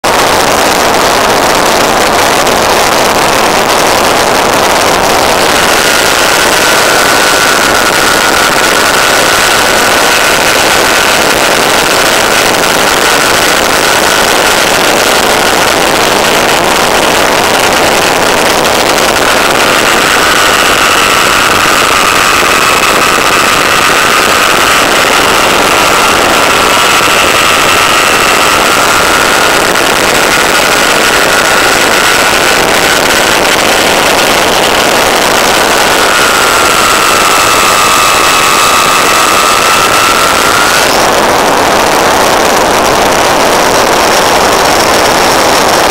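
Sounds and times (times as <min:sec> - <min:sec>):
air rushing over microphone: 0:00.0 - 0:45.9
high-pitched whine: 0:00.0 - 0:45.9.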